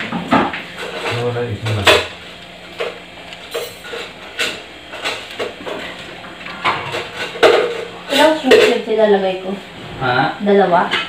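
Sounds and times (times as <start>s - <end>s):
kitchen utensils knocking and clinking: 6.6s - 8.9s.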